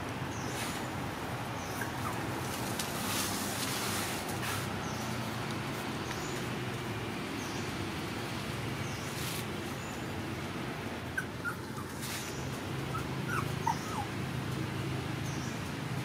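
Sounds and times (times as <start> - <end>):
puppy whimpering: 11.2 - 12.0, 12.9 - 14.2.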